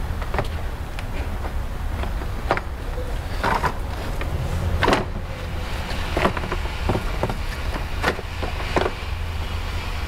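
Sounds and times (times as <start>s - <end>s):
steady low hum: 0.0s - 10.0s
plastic shroud knocking and scraping: 6.0s - 9.0s.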